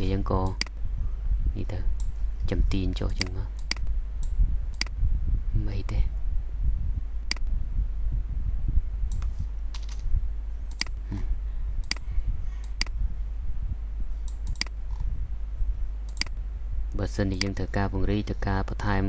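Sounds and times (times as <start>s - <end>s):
low steady hum: 0.0s - 19.0s
computer mouse clicks: 3.1s - 5.0s, 7.3s - 7.5s, 9.1s - 10.0s, 10.7s - 11.0s, 11.8s - 12.0s, 14.2s - 15.0s, 16.1s - 16.4s.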